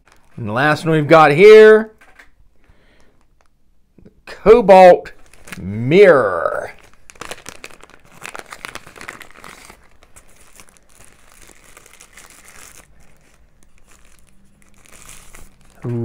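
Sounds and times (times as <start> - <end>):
plastic bag crinkling: 0.0 - 0.5, 5.0 - 15.9.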